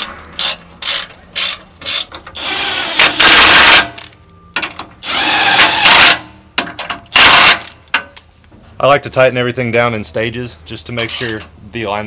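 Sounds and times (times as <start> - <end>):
power tool driving bolts: 0.0 - 8.0.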